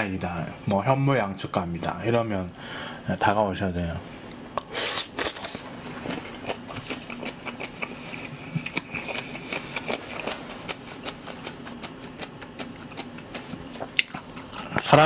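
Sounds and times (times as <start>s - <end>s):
steady low hum: 0.0s - 15.0s
chewing food: 4.6s - 15.0s.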